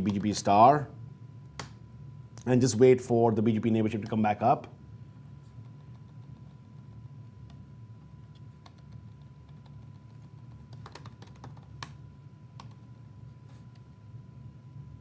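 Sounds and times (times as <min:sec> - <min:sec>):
low steady hum: 0:00.0 - 0:15.0
keyboard typing: 0:05.7 - 0:06.9, 0:08.3 - 0:12.0, 0:12.6 - 0:12.8.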